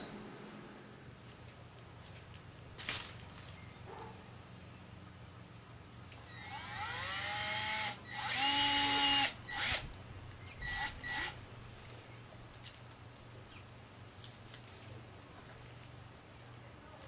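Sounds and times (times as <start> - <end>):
cordless drill driving screw: 6.3 - 9.8, 10.6 - 11.4.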